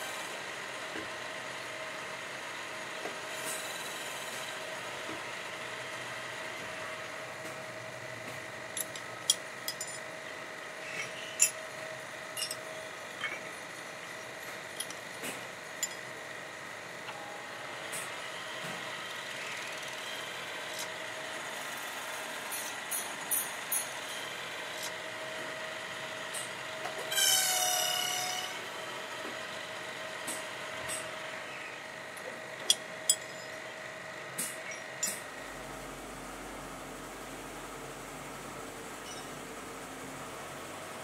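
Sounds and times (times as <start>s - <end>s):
metal lathe humming: 8.6s - 16.3s
metal part ringing: 8.7s - 10.1s, 11.4s - 11.6s, 12.3s - 13.4s, 14.8s - 15.0s, 15.8s - 16.1s, 32.6s - 33.6s
metal parts clinking: 8.7s - 10.1s, 11.4s - 11.6s, 12.3s - 13.5s, 14.7s - 15.0s, 15.8s - 16.0s.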